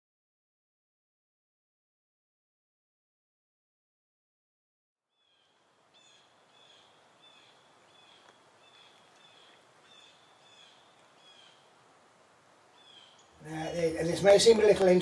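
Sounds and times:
low outdoor hiss: 5.0s - 15.0s
faint bird calling: 5.1s - 13.7s.

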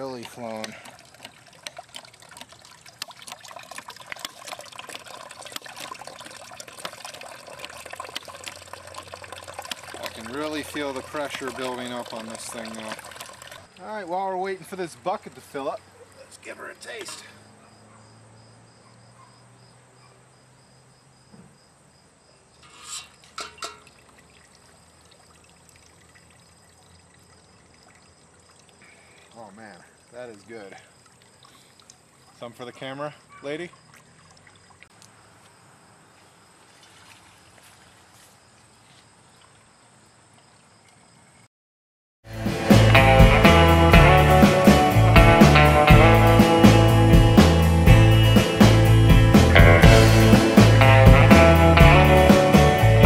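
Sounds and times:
juice pouring into metal pot: 0.0s - 13.9s, 22.6s - 32.5s
cider trickling into plastic cup: 0.0s - 14.2s, 22.6s - 32.6s, 33.6s - 35.1s
crickets chirping: 0.4s - 41.5s.

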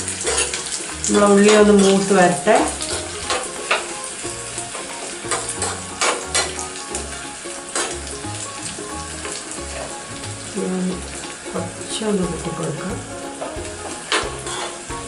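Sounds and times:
shallots sizzling in oil: 0.0s - 15.0s
steel spoon scraping pan: 0.1s - 3.9s.

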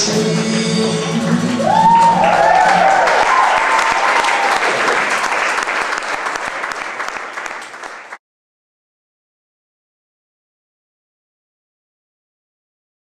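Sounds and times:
audience applauding: 0.0s - 8.2s
cheering whoops: 1.4s - 5.5s.

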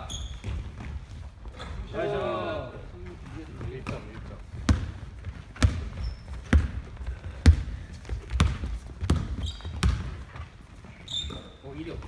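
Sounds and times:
basketball bouncing on wooden floor: 3.8s - 10.6s.

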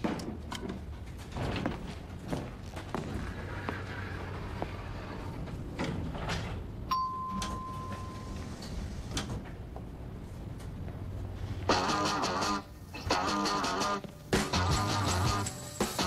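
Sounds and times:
elevator doors sliding open: 3.1s - 11.6s
elevator arrival chime: 6.9s - 8.8s.

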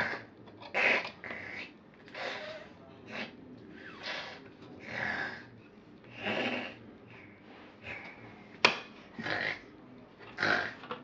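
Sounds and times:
toy bear snoring: 0.0s - 3.3s, 3.9s - 5.5s, 6.1s - 6.8s, 9.2s - 9.7s, 10.4s - 10.9s.

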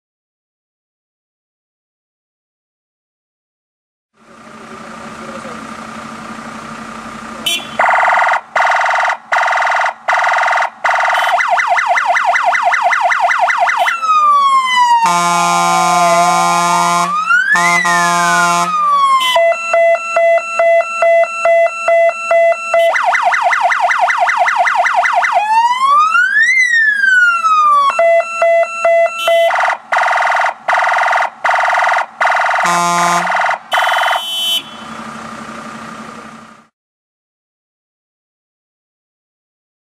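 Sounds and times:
fire engine electronic siren: 7.4s - 35.4s
deep horn blast: 15.0s - 19.4s, 32.6s - 35.0s.

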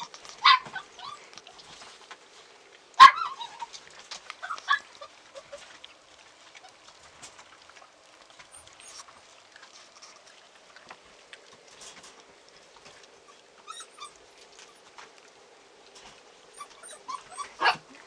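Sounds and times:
puppies crunching kibble: 0.0s - 18.0s.

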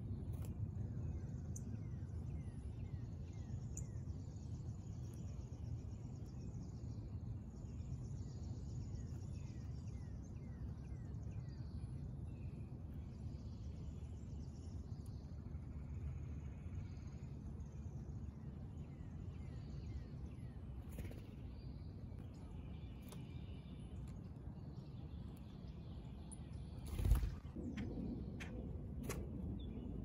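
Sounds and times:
small birds chirping: 0.0s - 30.0s
steady low rumble: 12.9s - 30.0s.

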